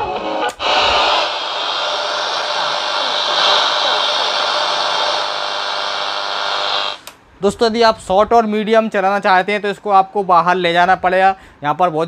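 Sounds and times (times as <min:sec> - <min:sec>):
radio static hissing: 0:00.0 - 0:07.1.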